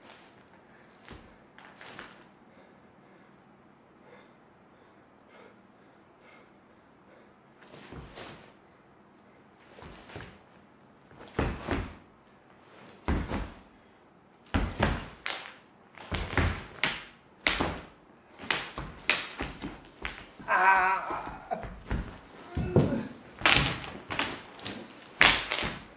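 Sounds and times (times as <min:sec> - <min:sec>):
dull thuds of dancer's movements: 0:07.8 - 0:08.5, 0:11.2 - 0:12.1, 0:12.9 - 0:13.7, 0:14.5 - 0:15.3, 0:21.1 - 0:24.6.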